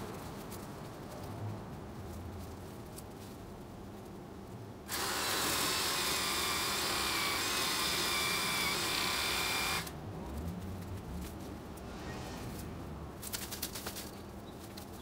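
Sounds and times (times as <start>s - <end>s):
electric power tool motor: 4.9s - 9.9s.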